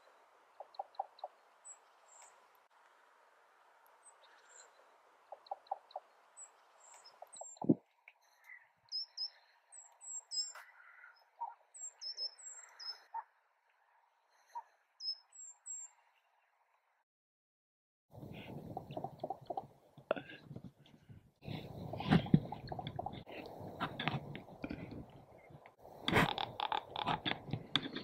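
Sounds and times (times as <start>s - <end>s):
small birds chirping: 0.0s - 2.6s, 4.0s - 13.3s, 14.3s - 16.4s
ravens knocking calls: 18.4s - 19.7s, 26.0s - 28.0s.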